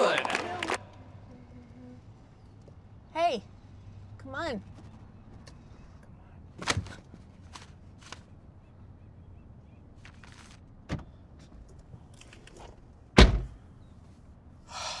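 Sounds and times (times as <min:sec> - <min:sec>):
car door slamming: 0:13.2 - 0:13.6.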